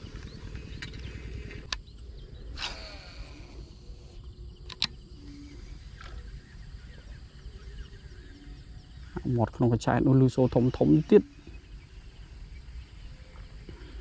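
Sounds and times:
insects chirping: 0.0s - 14.0s
low wind rumble: 0.0s - 14.0s
sharp clicks: 4.6s - 5.0s.

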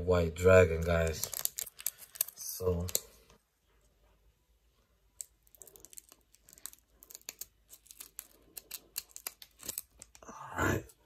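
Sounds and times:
wrapper rustling: 0.8s - 3.4s, 5.2s - 10.2s
scissors snipping foil wrapper: 0.9s - 3.0s, 5.2s - 10.2s.

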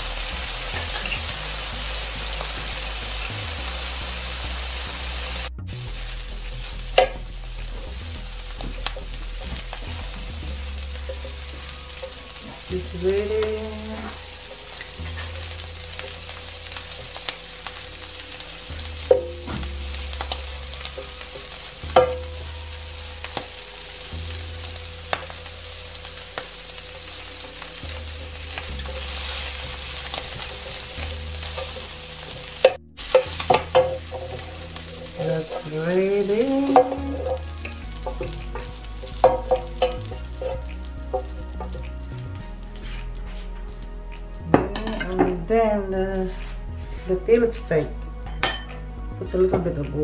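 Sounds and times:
prawns sizzling in hot oil: 0.0s - 45.4s
spatula scraping and tapping pan: 14.0s - 17.4s, 28.3s - 35.8s, 36.4s - 41.9s
metal tongs clicking against pan: 28.4s - 41.9s.

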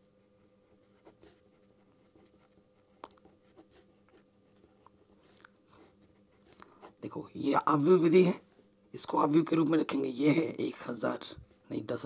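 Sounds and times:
low steady hum: 0.0s - 12.0s
pen scratching while writing: 0.6s - 7.0s.

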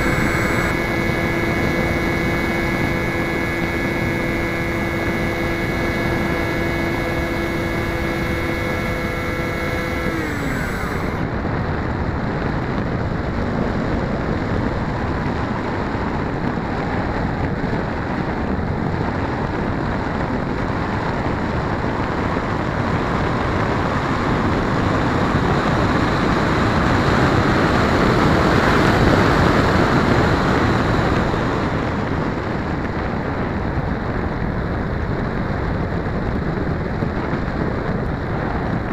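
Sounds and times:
model plane motor humming: 0.0s - 11.4s.

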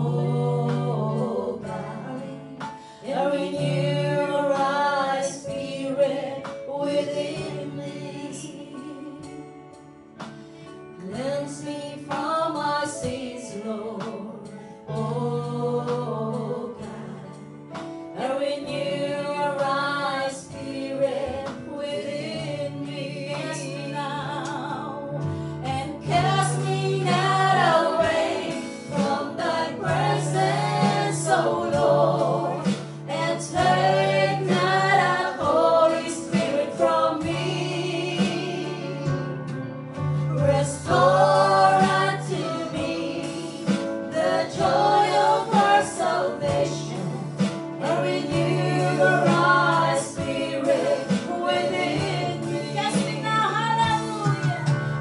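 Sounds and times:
women singing into microphones: 0.0s - 9.8s, 10.9s - 39.4s, 40.2s - 55.0s
electronic keyboard chords: 15.0s - 55.0s.

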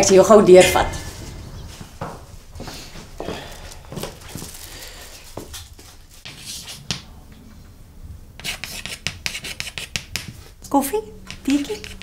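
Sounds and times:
rustling: 1.0s - 6.8s
soft footsteps: 1.0s - 7.0s
chalk tapping on chalkboard: 8.4s - 10.4s, 11.3s - 12.0s.

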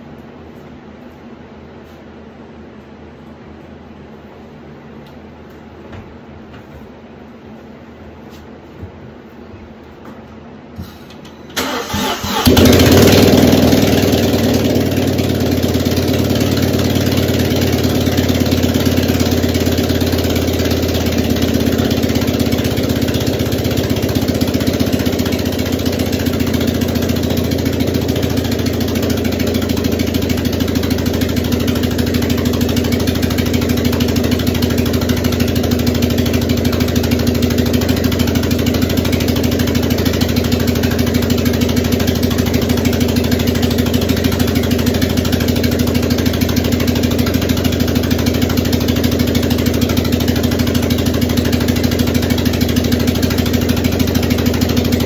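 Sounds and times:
car engine cranking and idling: 11.5s - 55.0s.

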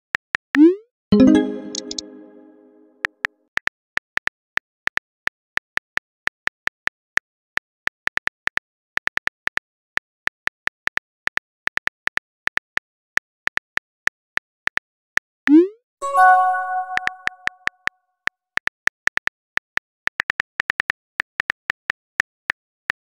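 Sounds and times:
phone keyboard typing clicks: 16.6s - 17.7s.

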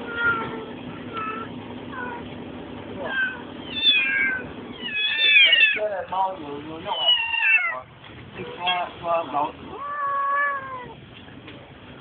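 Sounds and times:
kittens meowing: 0.0s - 2.4s, 3.0s - 5.9s, 6.8s - 9.0s, 9.6s - 11.0s
low steady hum: 0.0s - 12.0s.

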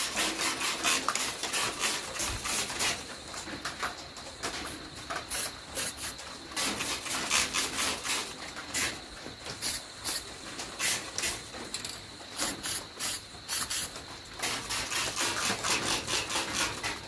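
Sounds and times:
spray can hissing in bursts: 0.0s - 3.0s, 5.3s - 9.0s, 9.6s - 11.5s, 12.4s - 16.7s.

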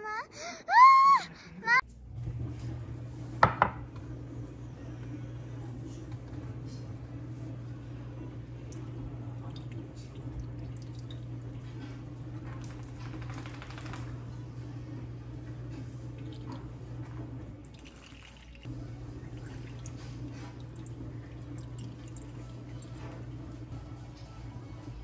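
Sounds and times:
liquid trickling into a bowl: 17.6s - 23.2s.

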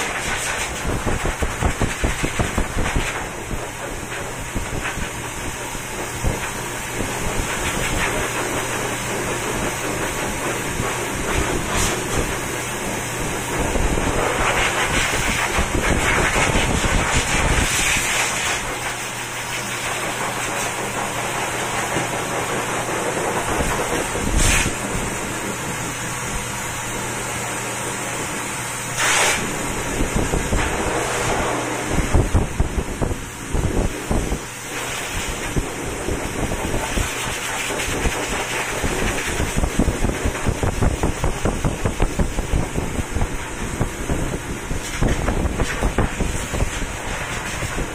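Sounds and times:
dryer blowing air: 0.0s - 47.9s
low motor hum: 19.8s - 47.9s.

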